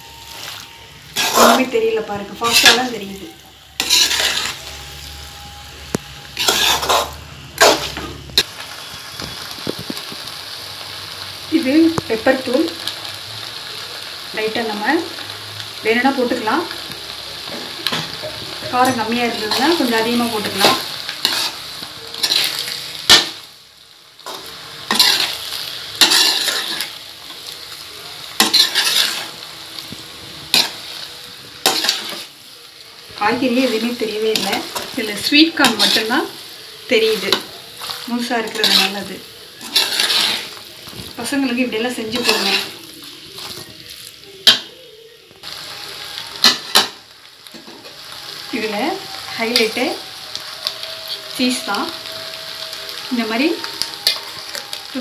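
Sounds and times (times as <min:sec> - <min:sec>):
low frying sizzle: 0:00.0 - 0:55.0
spatula scraping metal pan: 0:01.1 - 0:01.8, 0:02.4 - 0:03.0, 0:03.8 - 0:05.2, 0:06.3 - 0:08.5, 0:17.8 - 0:21.6, 0:22.2 - 0:23.4, 0:24.3 - 0:27.0, 0:28.4 - 0:29.4, 0:31.6 - 0:32.3, 0:37.0 - 0:40.6, 0:42.0 - 0:42.8.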